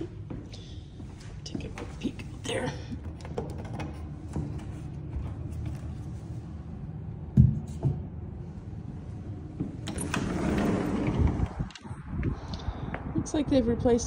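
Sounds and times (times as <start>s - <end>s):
sliding door rolling on track: 9.4s - 11.9s.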